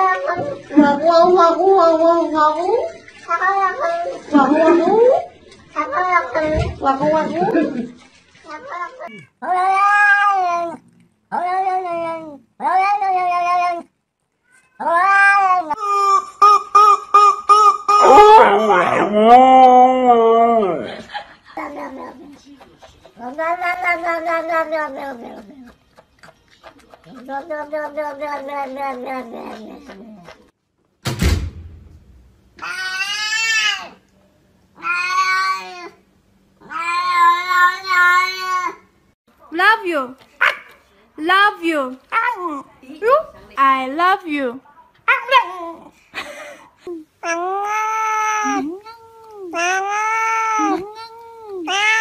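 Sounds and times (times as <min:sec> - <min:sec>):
cat meowing: 0:08.5 - 0:15.8, 0:23.2 - 0:25.7, 0:47.2 - 0:52.0
sharp thump: 0:31.0 - 0:32.4.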